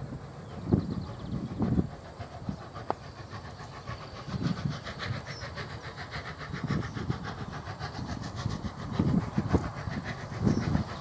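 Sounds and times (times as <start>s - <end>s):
steam locomotive exhaust beating: 0.0s - 11.0s
wind buffeting microphone: 0.0s - 11.0s.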